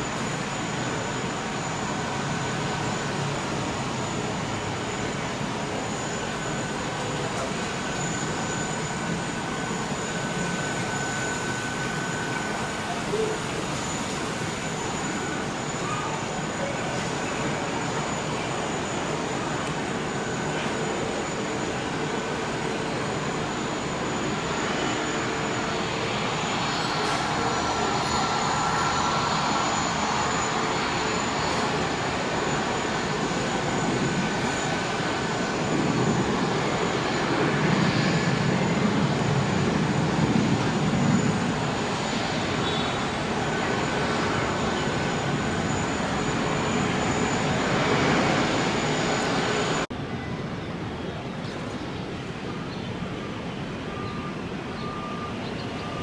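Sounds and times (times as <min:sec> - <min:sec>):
thin jet whine: 0:00.0 - 0:50.3
jet engine rumble: 0:00.0 - 0:56.0.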